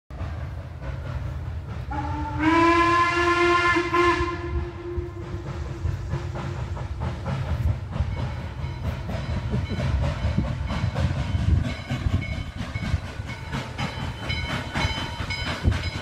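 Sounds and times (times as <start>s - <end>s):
steam locomotive whistle: 1.9s - 6.7s.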